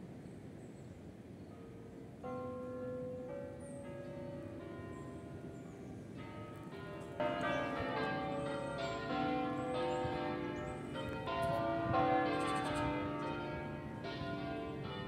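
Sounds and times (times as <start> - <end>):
church bells pealing: 1.6 - 15.0.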